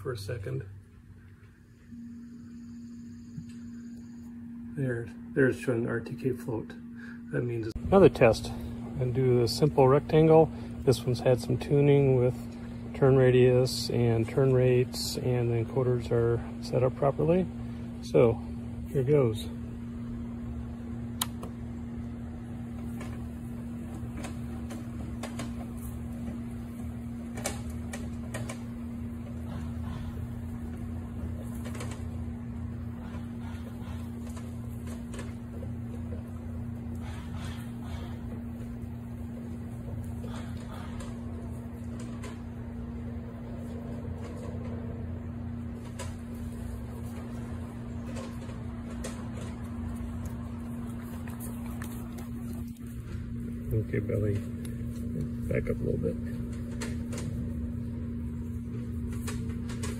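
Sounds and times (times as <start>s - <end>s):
robot lawnmower humming: 18.8s - 59.9s.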